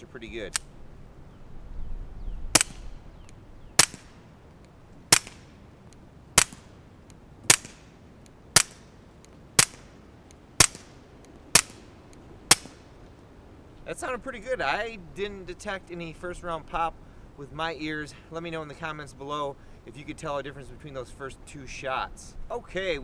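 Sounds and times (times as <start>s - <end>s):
suppressed pistol shots: 2.5s - 3.0s, 3.7s - 4.2s, 5.1s - 5.6s, 6.4s - 6.8s, 7.4s - 9.0s, 9.6s - 9.9s, 10.6s - 11.9s, 12.5s - 12.8s.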